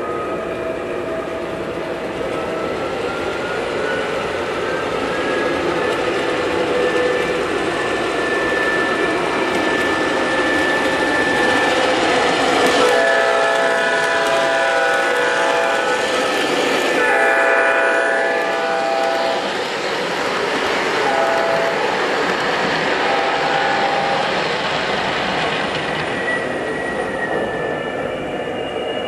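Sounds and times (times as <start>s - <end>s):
model train rolling on track: 0.0s - 29.0s
model train horn blasts: 12.7s - 16.1s, 16.9s - 19.5s, 21.0s - 21.9s, 23.0s - 24.2s.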